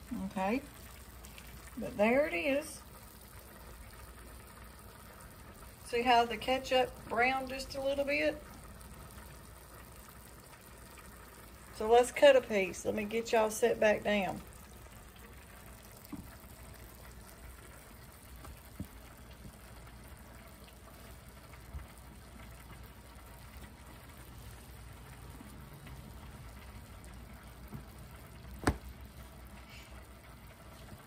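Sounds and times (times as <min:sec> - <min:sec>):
faint steady hiss: 0:00.0 - 0:31.0
light knocks on kitchen counter: 0:28.6 - 0:28.9.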